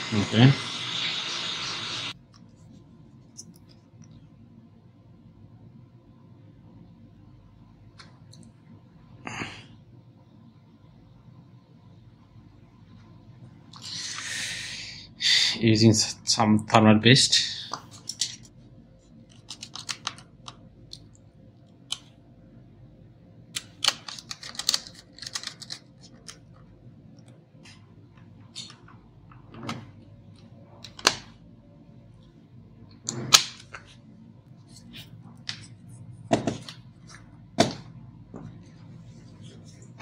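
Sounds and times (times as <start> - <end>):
clicks and knocks of laptop parts: 36.3 - 36.8.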